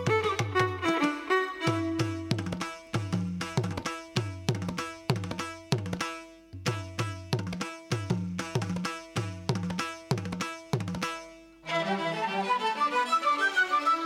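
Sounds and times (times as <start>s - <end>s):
tuned hand drum playing: 2.0s - 6.0s, 6.6s - 11.1s.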